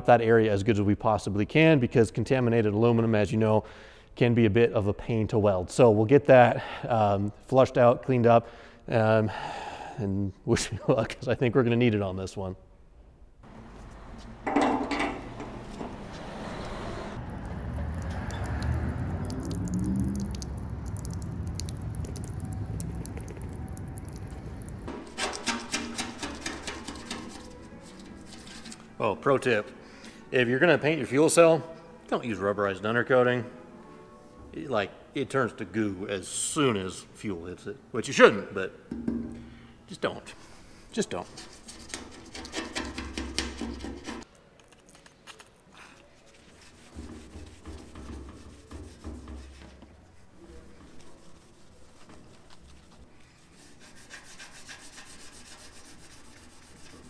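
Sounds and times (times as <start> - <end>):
water draining onto concrete: 17.2 - 24.9
gloved hand scrubbing metal: 24.9 - 28.9, 46.4 - 49.8, 50.8 - 57.0
rag wiping metal tank: 24.9 - 28.9, 46.4 - 50.0, 50.6 - 57.0.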